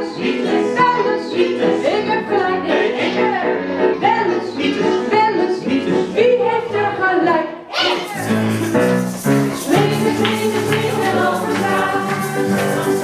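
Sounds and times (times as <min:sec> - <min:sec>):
voices singing: 0:00.0 - 0:08.8, 0:09.4 - 0:13.0
acoustic guitar: 0:07.8 - 0:13.0
keyboard playing: 0:08.0 - 0:13.0.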